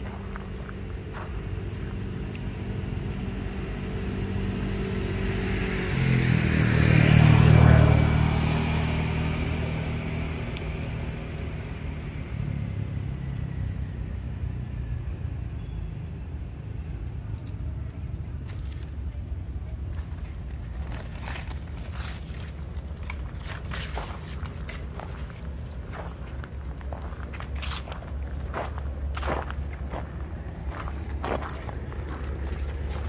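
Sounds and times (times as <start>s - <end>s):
vehicle engine passing: 0.0s - 15.1s.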